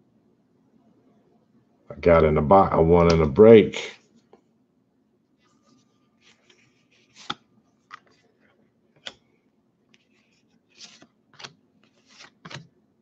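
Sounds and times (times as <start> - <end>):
cards being shuffled by hand: 5.4 - 9.2, 9.9 - 12.7.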